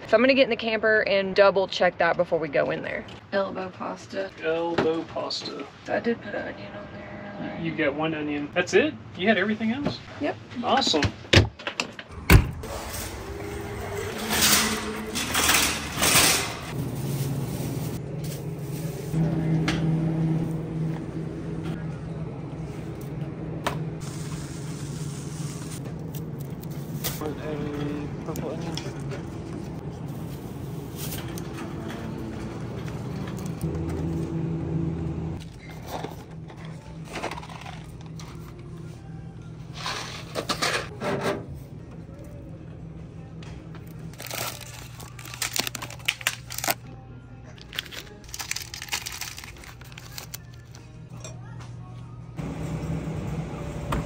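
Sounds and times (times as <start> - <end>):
shopping cart rolling: 12.6 - 19.2, 30.1 - 34.4
snack wrappers crinkling: 44.1 - 46.9, 47.6 - 50.8.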